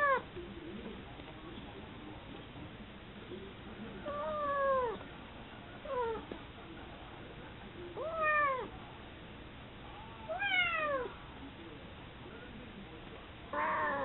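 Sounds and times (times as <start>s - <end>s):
cat meowing angrily: 4.1s - 5.0s, 8.0s - 8.7s, 10.3s - 11.1s, 13.5s - 14.0s.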